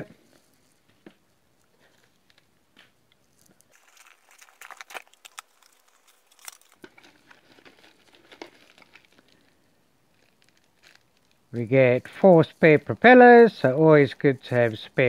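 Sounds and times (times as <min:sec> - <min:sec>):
plastic bag crinkling: 0:03.2 - 0:13.6
cardboard rustling and scraping: 0:03.3 - 0:09.5.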